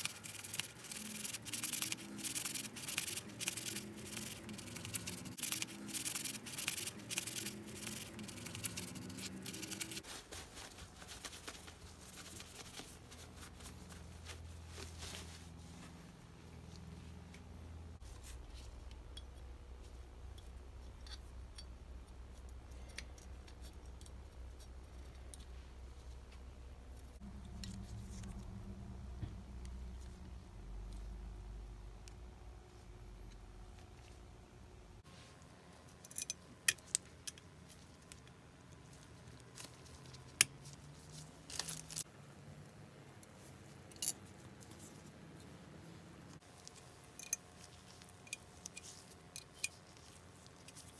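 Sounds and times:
steady low hum: 0.0 - 43.7
metallic clicks of small parts: 36.0 - 38.4, 43.9 - 44.2, 46.7 - 47.5, 48.1 - 49.9.

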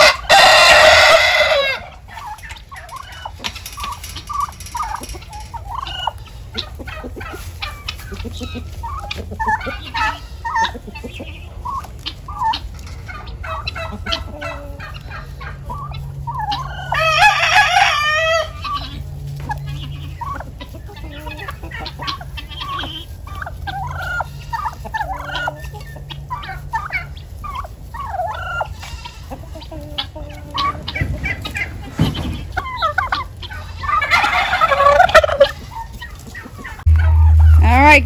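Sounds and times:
rattling turkey gobble: 0.0 - 38.0
turkeys and chickens clucking: 0.0 - 38.0.

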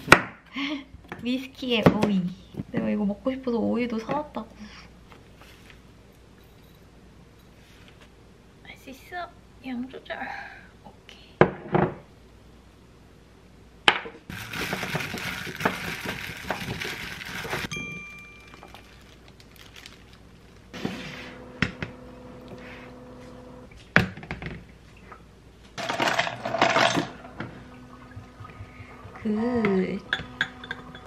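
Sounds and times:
food rustling in a bowl: 14.3 - 17.7, 18.4 - 20.8.

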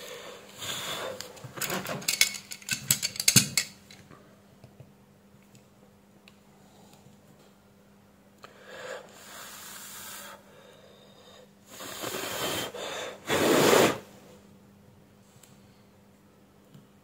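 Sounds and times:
person blowing puffs of breath: 8.5 - 14.0.

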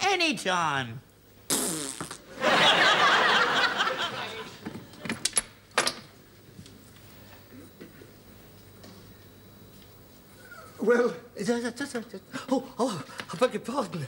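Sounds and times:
audience laughing: 2.3 - 4.6.

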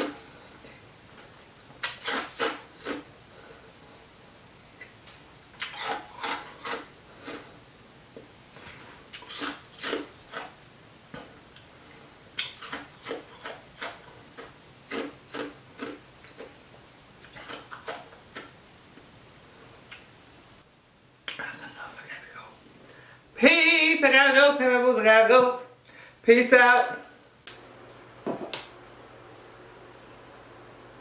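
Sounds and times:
ice crunching in mouth: 9.1 - 10.5, 12.4 - 16.6.

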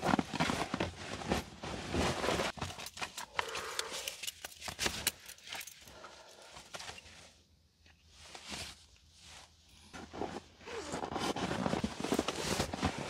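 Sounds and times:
metal hardware clinking: 2.7 - 5.9.

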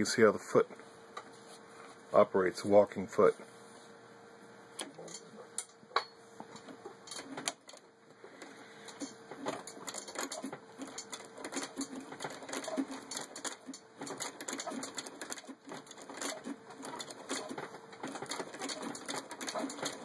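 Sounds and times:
sewing machine clicking: 6.5 - 7.8, 8.4 - 20.0.

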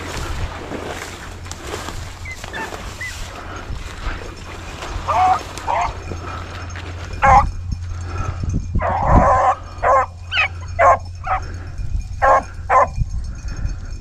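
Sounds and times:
hounds baying and barking: 2.2 - 3.6, 4.6 - 13.0.

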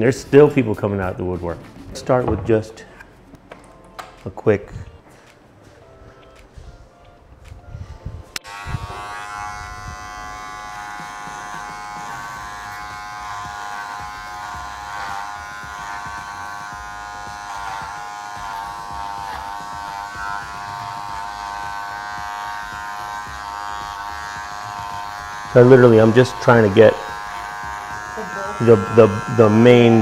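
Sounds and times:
electric hair clippers buzzing: 8.4 - 30.0.

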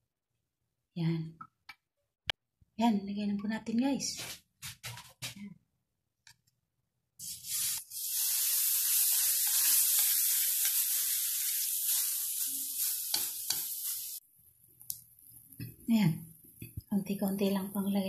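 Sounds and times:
batter sizzling in hot oil: 7.2 - 18.0.

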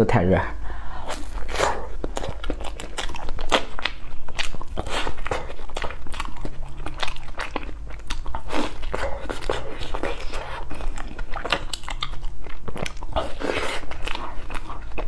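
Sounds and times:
wet bites and chews: 1.0 - 15.0.

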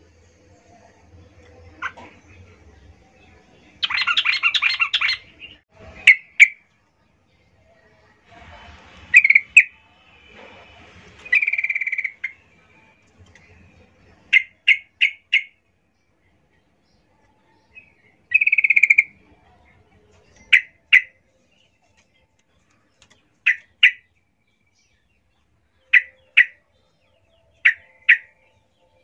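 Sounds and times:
bird chattering rattles: 11.2 - 12.4.

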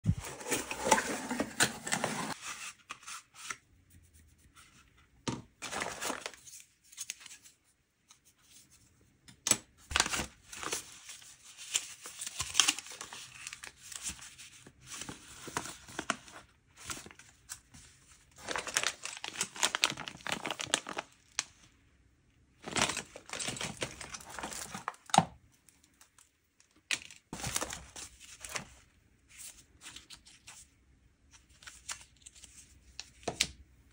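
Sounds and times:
cardboard box opening: 0.1 - 2.4
paper and plastic rustling: 0.1 - 3.5, 5.6 - 7.6, 9.9 - 21.1, 22.6 - 25.1, 27.0 - 30.7.

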